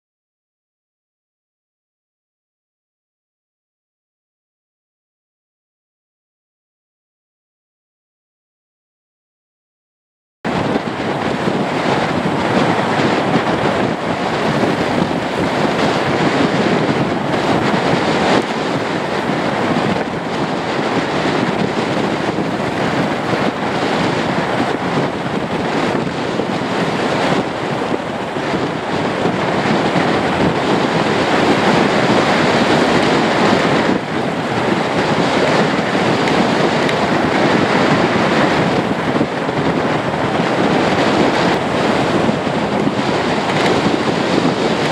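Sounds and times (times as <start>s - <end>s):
wind on microphone: 10.5s - 44.9s.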